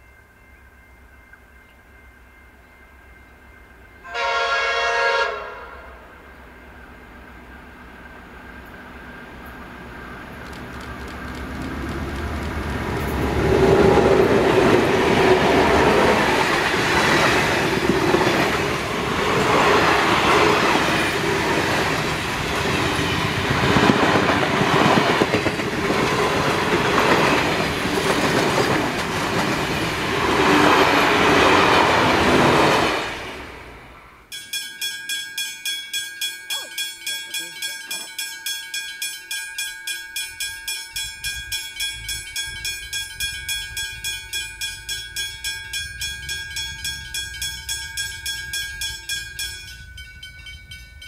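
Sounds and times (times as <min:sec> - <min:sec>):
diesel locomotive engines: 0:00.0 - 0:34.3, 0:40.4 - 0:51.0
train wheels clattering over rail joints: 0:10.4 - 0:32.8.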